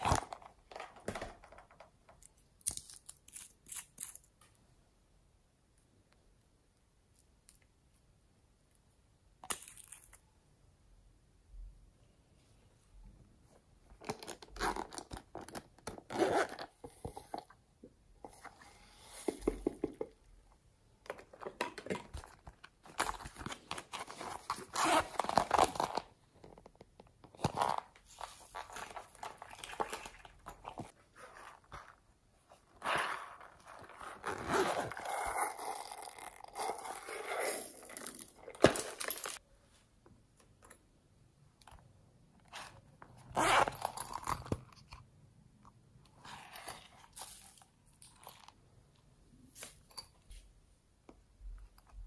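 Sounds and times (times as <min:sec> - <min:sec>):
zippers on pencil cases: 0:14.0 - 0:17.2, 0:23.0 - 0:26.0, 0:32.7 - 0:39.4, 0:42.5 - 0:44.6.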